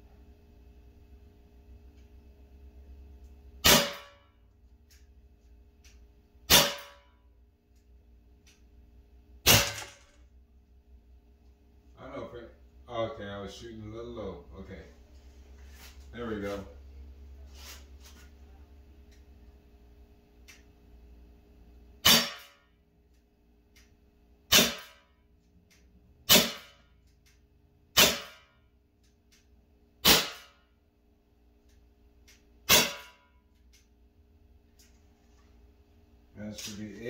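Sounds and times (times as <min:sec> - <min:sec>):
pellet pistol shots: 0:03.6 - 0:04.2, 0:06.5 - 0:07.1, 0:09.4 - 0:10.2, 0:22.0 - 0:22.6, 0:24.5 - 0:25.0, 0:26.2 - 0:26.8, 0:27.9 - 0:28.5, 0:30.0 - 0:30.6, 0:32.6 - 0:33.2.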